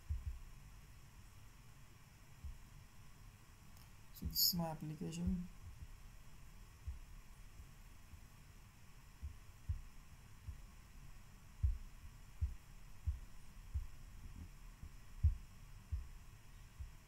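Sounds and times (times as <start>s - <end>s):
faint low thumps: 0.0s - 0.8s, 2.4s - 2.7s, 5.2s - 17.0s
low hum: 0.0s - 17.0s.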